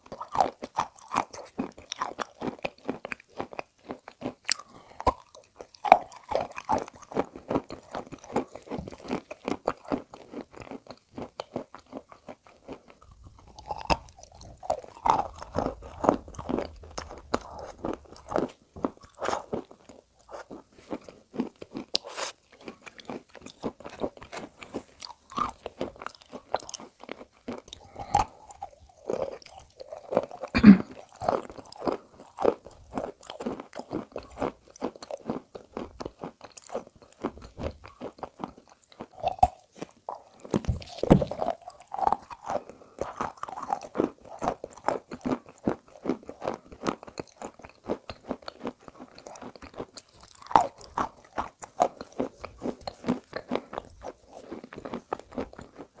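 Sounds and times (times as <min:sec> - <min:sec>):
crunching and chewing chalk: 0:00.0 - 0:56.0.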